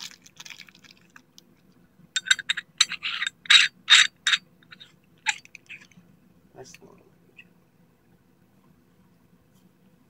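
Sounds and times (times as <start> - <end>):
metallic clinks and scrapes: 2.2 - 6.0.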